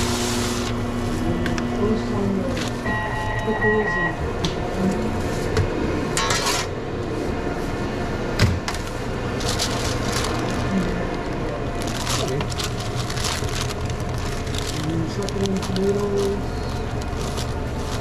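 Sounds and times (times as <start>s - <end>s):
low equipment hum: 0.0s - 18.0s
food prep rustling: 8.6s - 18.0s.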